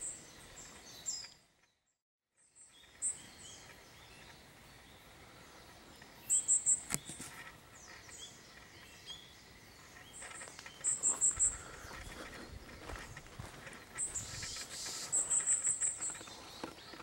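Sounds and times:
bird high thin call notes: 14.0s - 16.3s.

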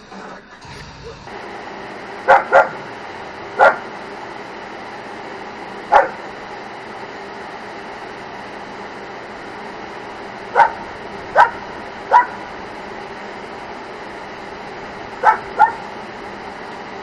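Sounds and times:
dog barking: 2.3s - 2.9s, 3.6s - 3.9s, 5.9s - 6.3s, 10.5s - 12.5s, 15.2s - 15.9s.

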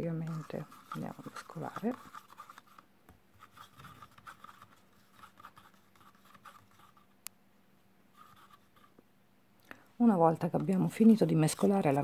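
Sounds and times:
stick scraping plastic cup: 0.0s - 7.1s, 8.2s - 9.0s, 10.4s - 12.0s.

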